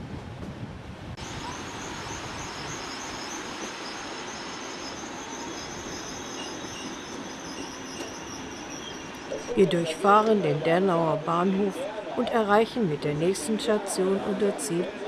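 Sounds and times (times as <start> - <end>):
train rushing and rumbling: 0.0 - 14.5
high pulsing chirp: 1.2 - 11.3.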